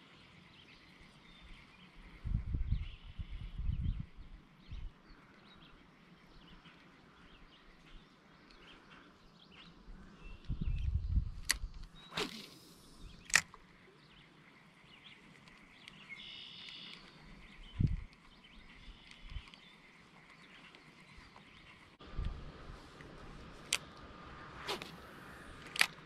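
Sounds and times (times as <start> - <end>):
fishing reel bail snapping: 11.4 - 13.6, 25.6 - 26.0
rod whooshing swish: 12.1 - 12.8, 24.5 - 25.6
fishing reel bail click: 25.6 - 26.0.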